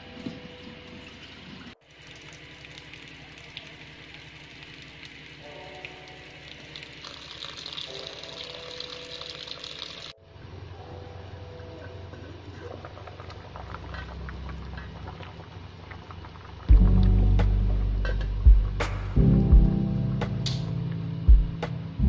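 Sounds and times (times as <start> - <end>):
tap water pouring into metal basin: 1.0 - 10.2.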